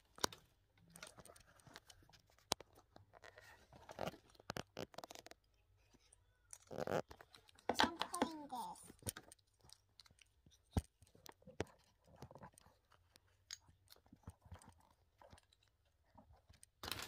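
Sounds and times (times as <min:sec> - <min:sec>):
plastic toy pieces clicking: 0:04.0 - 0:13.9.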